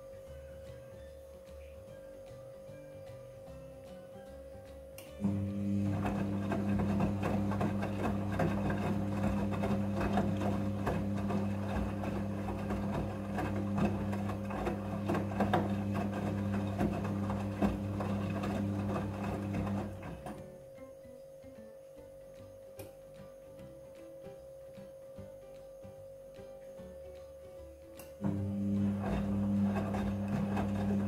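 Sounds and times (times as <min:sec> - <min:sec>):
washing machine motor hum: 0:05.0 - 0:20.8, 0:27.3 - 0:31.0.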